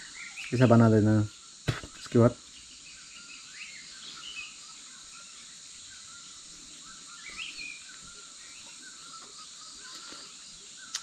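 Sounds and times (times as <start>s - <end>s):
high insect drone: 0.0s - 11.0s
small birds chirping: 0.0s - 11.0s.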